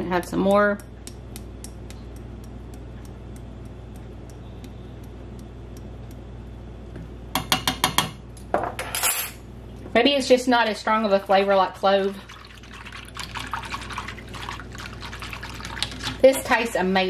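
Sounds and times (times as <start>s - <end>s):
steady low hum: 0.0s - 17.0s
faint light ticking: 0.8s - 6.3s.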